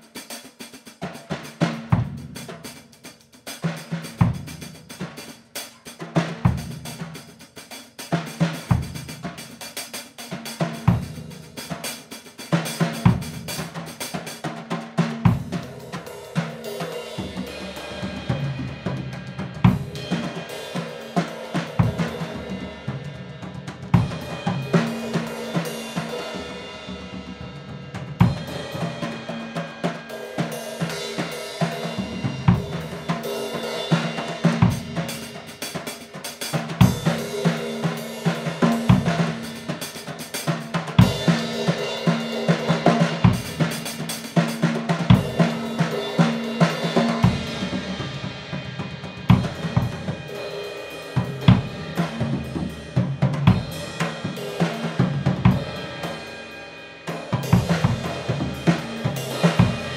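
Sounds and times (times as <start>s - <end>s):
snare and tom strokes: 23.4s - 59.9s.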